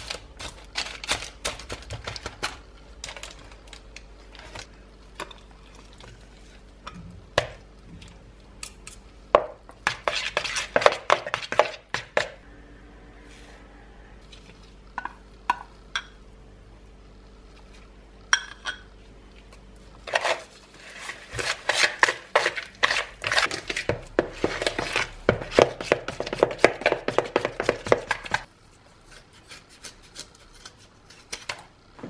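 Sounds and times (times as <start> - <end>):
metal spoon scraping crumbs: 20.0 - 28.5.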